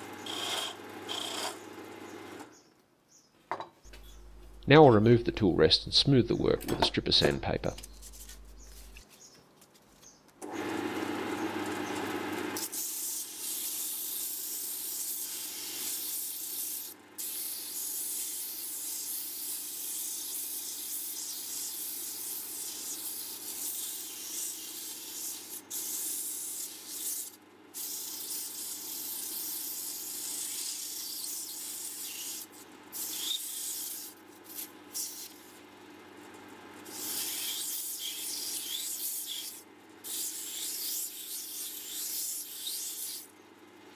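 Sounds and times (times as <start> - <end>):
sandpaper hissing on spinning wood: 12.6 - 35.6, 36.9 - 43.3.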